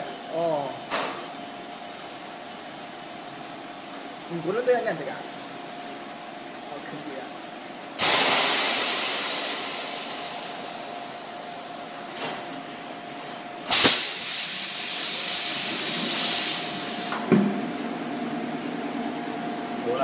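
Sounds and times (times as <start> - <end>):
short puff of air: 8.0 - 11.1, 13.7 - 17.2
loud blast of air: 8.0 - 11.5, 13.7 - 17.3
compressed air hissing: 8.0 - 11.6, 13.7 - 17.3.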